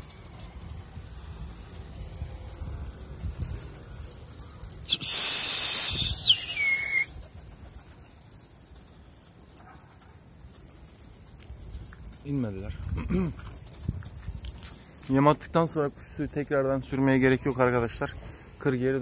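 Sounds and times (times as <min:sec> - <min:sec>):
loud two-note whistle: 0:04.9 - 0:07.1.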